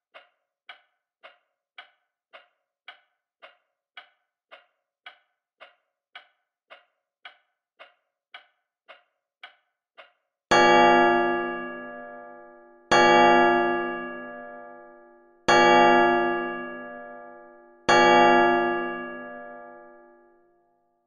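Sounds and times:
clock ticking: 0.1s - 20.4s
piano chord ringing: 10.5s - 20.4s.

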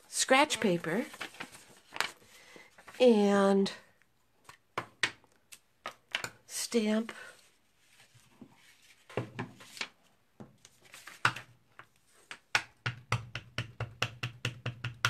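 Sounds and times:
paper handling: 0.6s - 3.0s, 10.6s - 11.4s.

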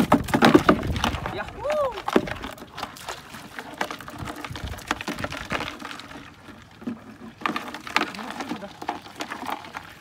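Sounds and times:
paddle knocking on wooden canoe: 0.0s - 3.0s.

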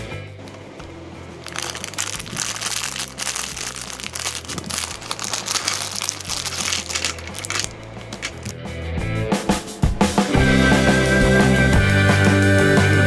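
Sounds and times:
soft background music: 0.0s - 13.0s
plastic bag crinkling: 1.4s - 8.5s.

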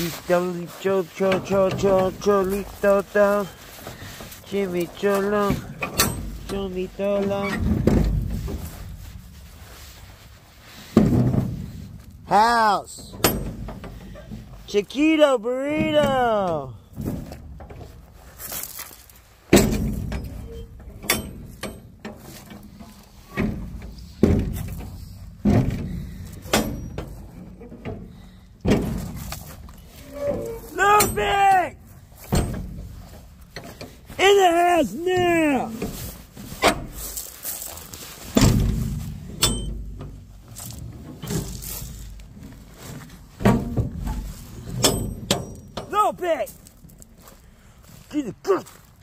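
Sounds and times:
thumps with low rumble: 5.3s - 9.8s, 10.9s - 12.3s, 23.4s - 30.0s, 38.3s - 45.9s.

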